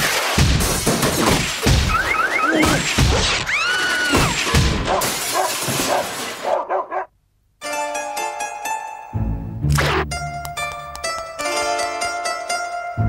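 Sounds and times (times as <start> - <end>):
cartoon crashes and smashing: 0.0 - 6.5.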